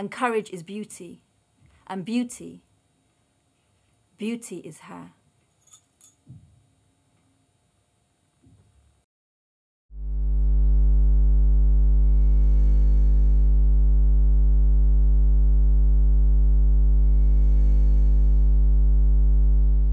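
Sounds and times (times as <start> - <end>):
low synthesizer drone: 10.0 - 19.9.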